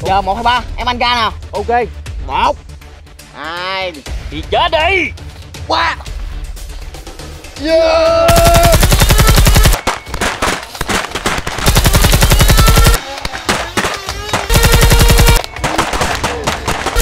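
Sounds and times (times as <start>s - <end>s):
music: 0.0s - 10.9s, 11.7s - 17.0s
machine-gun fire: 8.3s - 17.0s.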